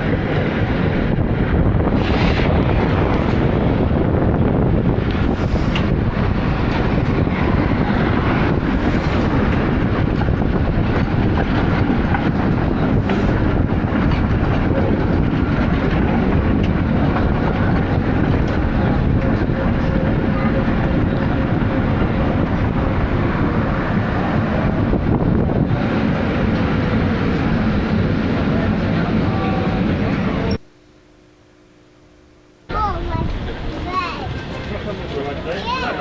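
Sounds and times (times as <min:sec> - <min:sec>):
tram wheels rumbling: 0:00.0 - 0:30.6, 0:32.7 - 0:36.0.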